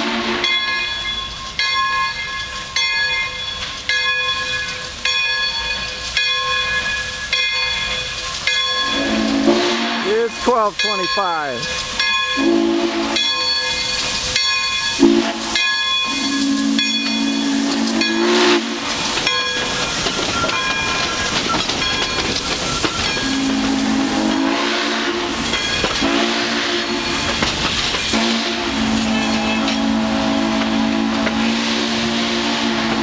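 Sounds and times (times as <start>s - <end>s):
steam whistle blasts: 0.0s - 0.8s, 8.9s - 10.4s, 12.4s - 13.5s, 15.0s - 18.9s, 23.2s - 25.4s, 26.0s - 27.1s, 28.1s - 33.0s
steam hissing: 0.0s - 33.0s
train rolling: 0.0s - 33.0s.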